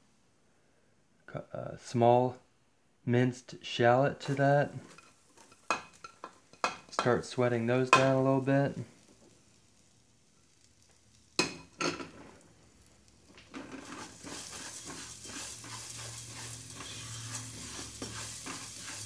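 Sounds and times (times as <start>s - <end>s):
spatula stirring and scraping: 4.2s - 7.2s, 13.1s - 19.0s
food sizzling in hot oil: 4.2s - 19.0s.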